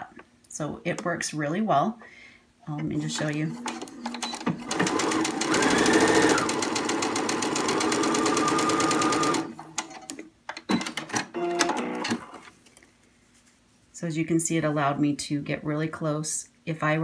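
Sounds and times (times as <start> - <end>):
sewing machine stitching: 3.1 - 10.2.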